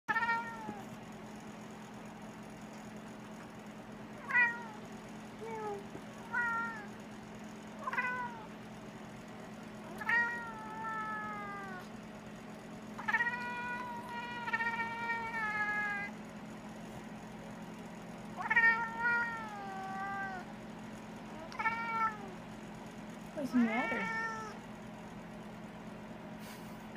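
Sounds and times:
cat meowing: 4.2 - 4.8, 5.5 - 6.9, 9.9 - 11.9, 13.0 - 16.1, 18.4 - 20.5, 21.4 - 22.4, 23.7 - 24.6.

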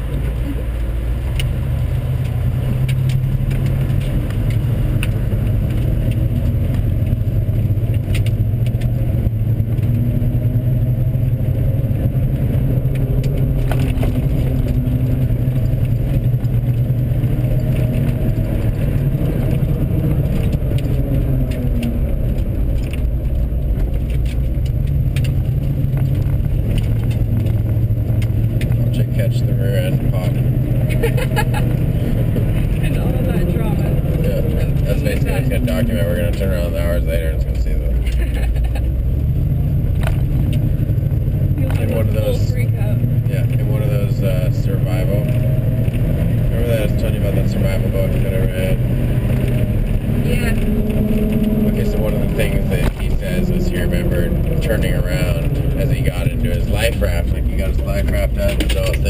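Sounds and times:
truck engine and road noise: 0.0 - 59.0
light clicks and rattles: 12.3 - 39.0, 43.4 - 59.0.

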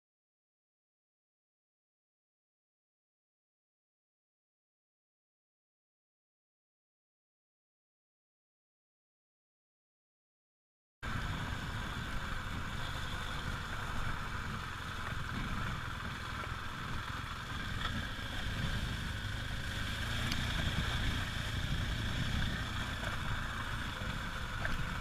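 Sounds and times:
motorcycle engine running: 11.0 - 25.0
wind rumble on microphone: 11.0 - 25.0.

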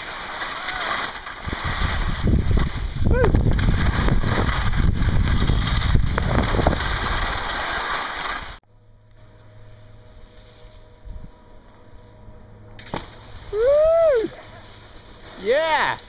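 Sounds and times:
skis sliding on snow: 0.0 - 8.6, 12.9 - 16.0
wind rushing on microphone: 1.4 - 7.2.

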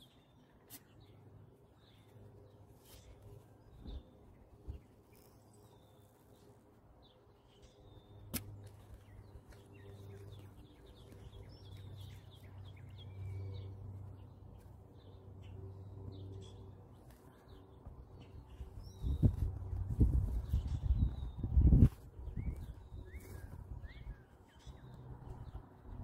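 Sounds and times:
birdsong chirps: 0.0 - 26.0.

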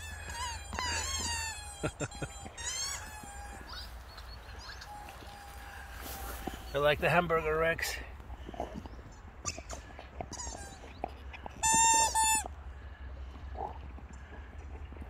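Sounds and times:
squeaky toy squeaks: 0.0 - 4.0, 9.4 - 10.9, 11.6 - 12.5.

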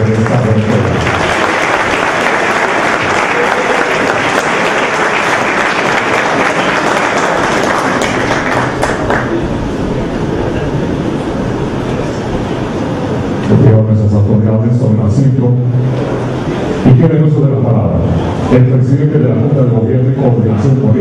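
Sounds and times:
audience applauding: 0.0 - 9.9.

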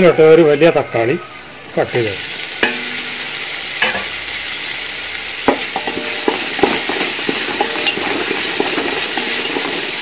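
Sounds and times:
tomato and onions sizzling in oil: 0.0 - 10.0
wooden spatula scraping a pot: 6.0 - 10.0.

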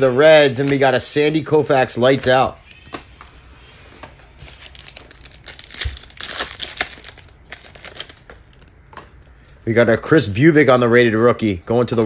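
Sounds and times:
foil wrapper tearing and crinkling: 4.4 - 8.7.

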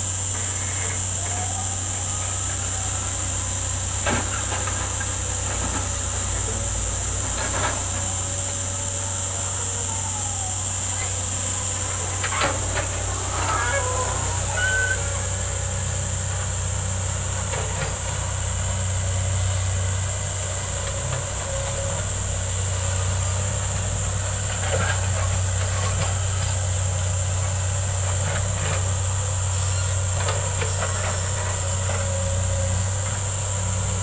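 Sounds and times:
high-pitched whine: 0.0 - 18.9
distant diesel engines droning: 0.0 - 34.0.

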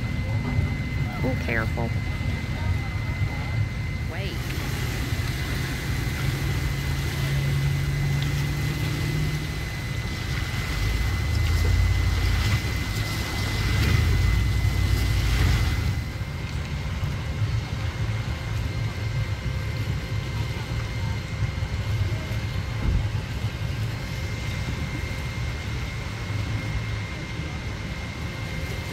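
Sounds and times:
low engine rumble: 0.0 - 28.9
waves splashing over concrete: 4.3 - 16.4.

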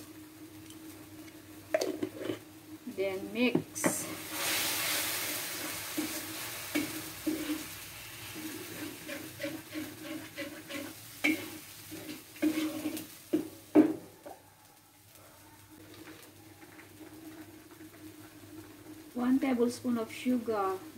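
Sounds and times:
metal ladle scraping wok: 1.8 - 2.4, 3.8 - 13.2
paste sizzling in oil: 3.3 - 14.0.

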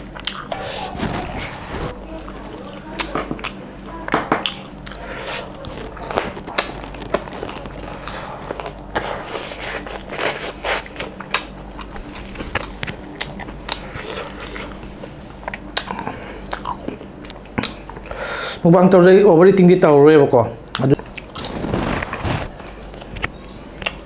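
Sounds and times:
chewing and lip smacks: 0.1 - 0.7, 8.0 - 14.8, 15.4 - 18.1.

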